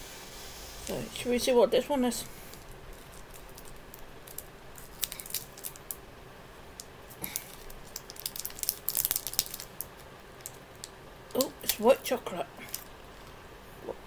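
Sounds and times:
plastic wrapper crinkling: 2.5s - 6.0s, 6.8s - 13.4s.

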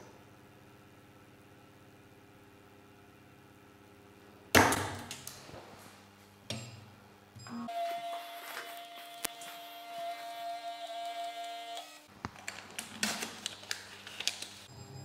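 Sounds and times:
small printer whine: 7.4s - 12.1s
paper rustling and clicks: 12.2s - 14.7s.

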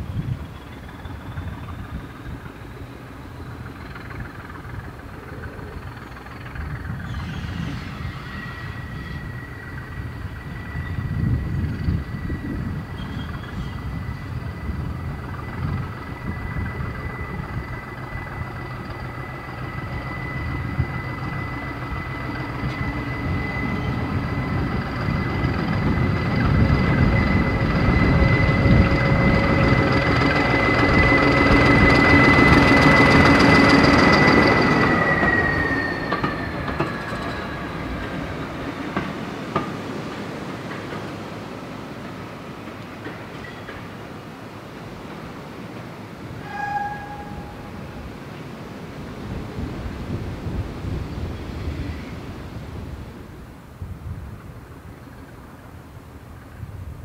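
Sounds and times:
high whine: 0.0s - 40.1s
locomotive engine rumble: 0.0s - 57.0s.

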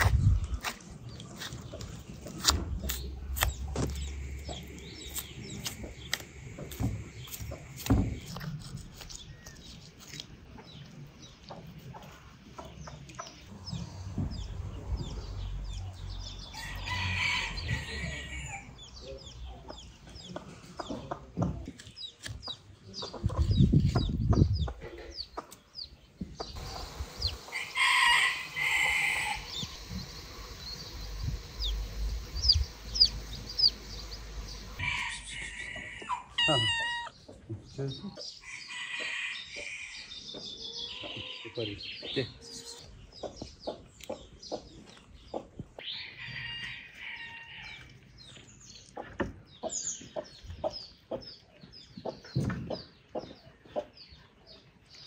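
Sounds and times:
chickens clucking: 0.0s - 46.6s, 47.6s - 55.0s
rooster crowing: 16.5s - 18.7s, 27.5s - 29.8s, 34.8s - 37.1s, 46.0s - 47.8s.

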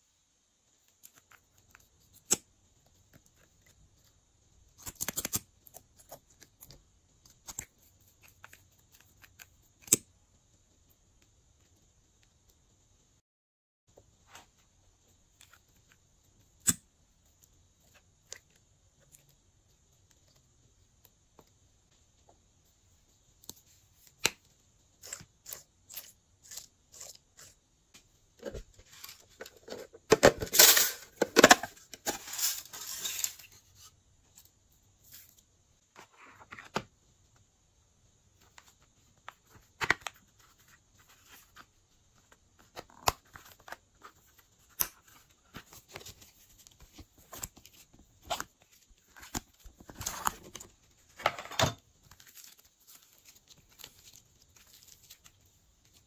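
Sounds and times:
plastic crackling and crinkling: 38.4s - 56.0s.

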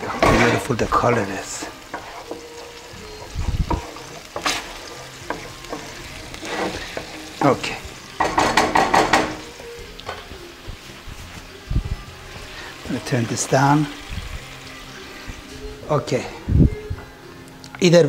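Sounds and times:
gravy sizzling and bubbling: 0.0s - 16.7s
spoon scraping a metal pan: 1.9s - 7.2s.

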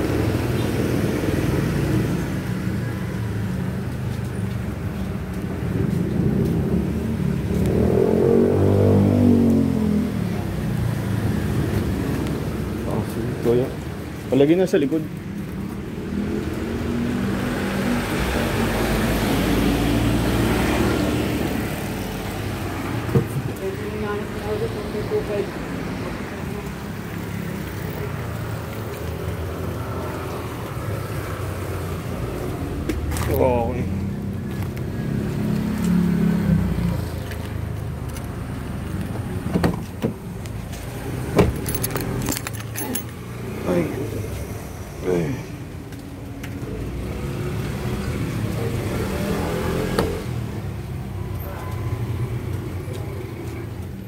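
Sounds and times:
vehicle passing by: 0.0s - 14.0s, 14.6s - 39.5s, 40.4s - 54.0s
sharp metallic clinks: 41.6s - 43.2s.

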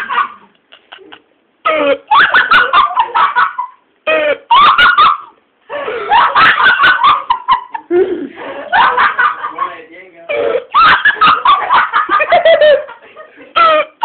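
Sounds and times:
people laughing hard: 0.0s - 14.0s.

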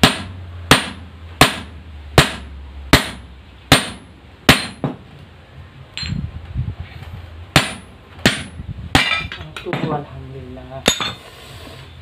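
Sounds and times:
hammer striking metal: 0.0s - 5.0s, 7.5s - 10.0s.

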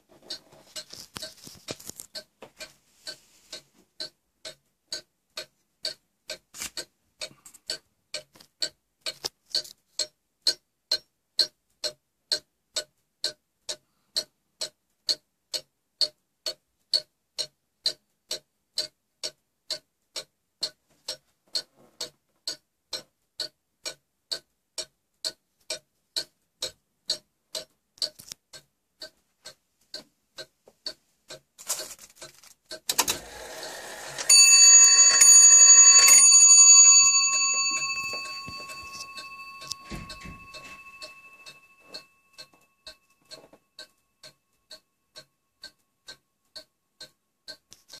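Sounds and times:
clock ticking: 0.0s - 48.0s
clock bell ringing loudly: 33.4s - 42.4s.

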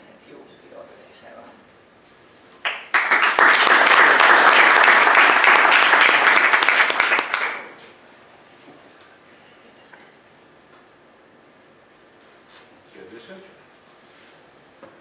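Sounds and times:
audience applauding: 2.6s - 7.8s.

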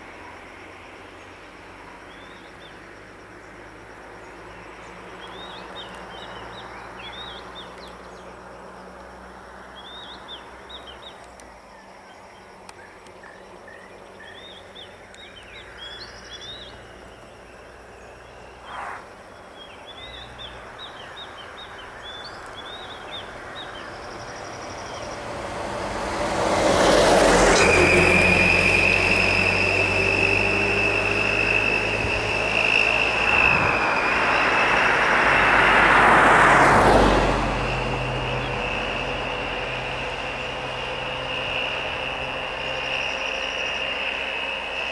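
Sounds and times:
birds chirping: 1.1s - 9.0s, 9.7s - 25.6s
steady high whine: 10.6s - 44.9s.

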